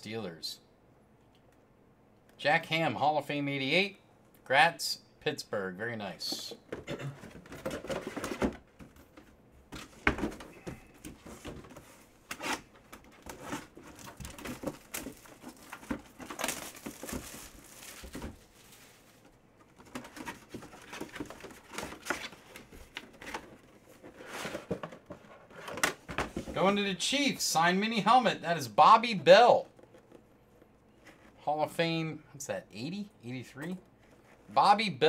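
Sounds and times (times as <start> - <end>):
cardboard rustling: 6.7 - 26.8, 29.0 - 31.4.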